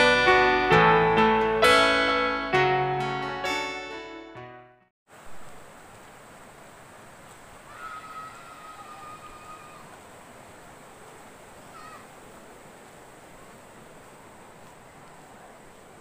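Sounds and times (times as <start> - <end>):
outdoor background hiss: 5.1 - 16.0
animal long falling call: 7.6 - 10.0
short falling animal call: 7.6 - 10.0, 11.6 - 12.2.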